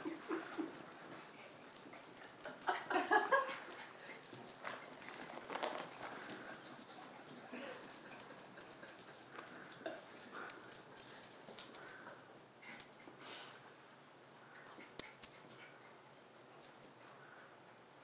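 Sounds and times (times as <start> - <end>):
dogs scuffling: 3.5 - 9.6.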